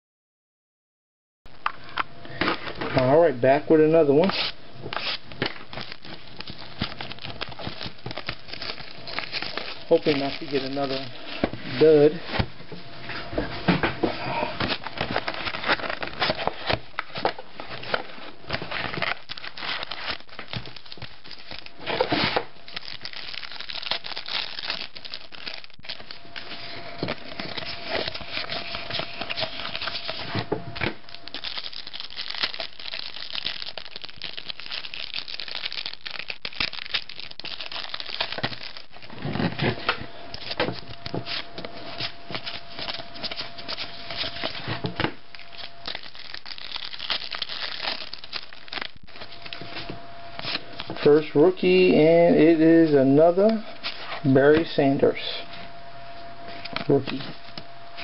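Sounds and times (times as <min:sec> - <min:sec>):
foil wrapper crinkling and tearing: 0:04.2 - 0:12.2, 0:14.6 - 0:51.3.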